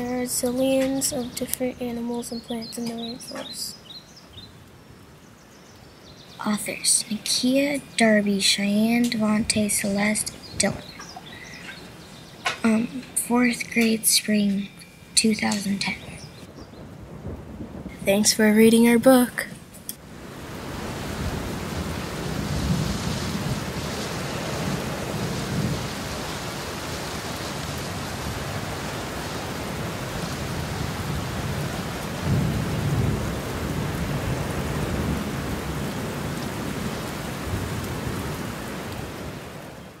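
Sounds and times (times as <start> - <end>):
steady rain: 0.0 - 40.0
low rolls of thunder: 16.4 - 39.7.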